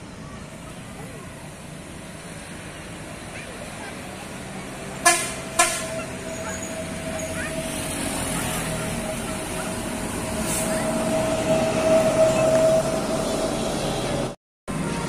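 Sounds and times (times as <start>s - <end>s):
bus engine: 0.0s - 15.0s
bus horn: 5.0s - 13.4s.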